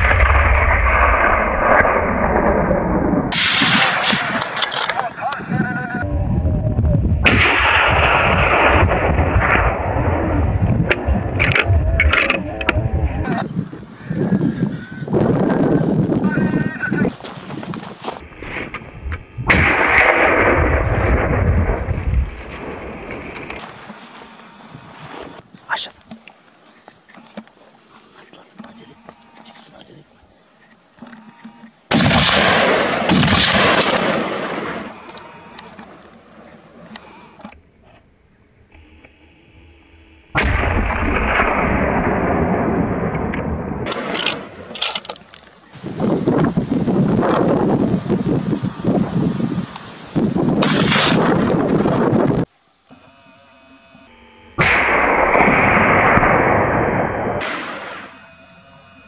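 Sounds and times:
gunshot with rolling echo: 0.0s - 4.9s, 7.2s - 10.3s, 19.4s - 23.4s, 31.9s - 34.9s, 50.6s - 51.6s, 54.6s - 58.1s.

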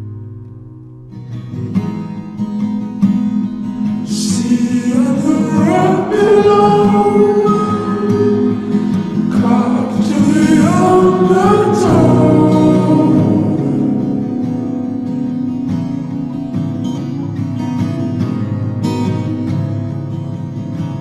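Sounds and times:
acoustic guitar: 0.0s - 21.0s
drawn-out sung vocals: 4.1s - 14.8s.

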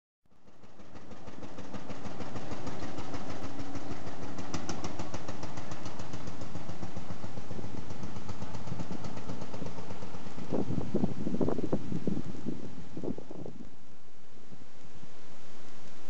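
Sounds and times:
tractor engine rapid beat: 0.4s - 11.7s.

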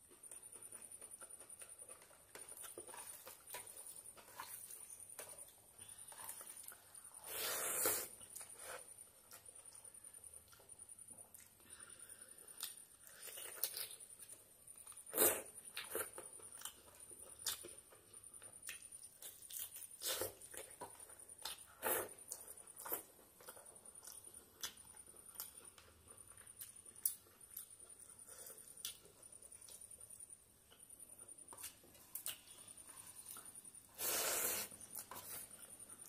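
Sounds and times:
wet chewing: 0.3s - 9.8s.

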